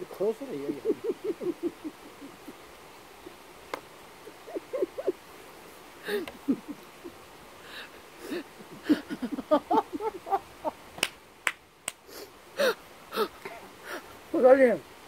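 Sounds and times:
woman laughing: 0.5s - 2.7s, 4.2s - 5.3s, 6.0s - 7.2s, 8.2s - 10.8s
hand claps: 11.0s - 12.0s.

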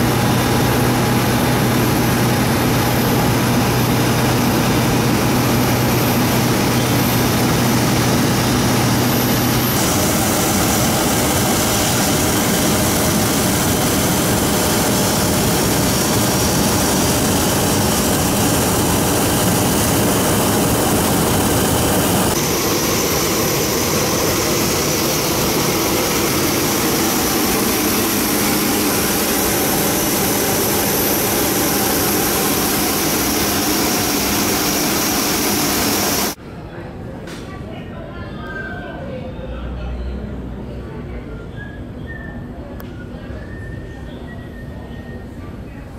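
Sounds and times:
jet turbine whine: 0.0s - 36.4s.

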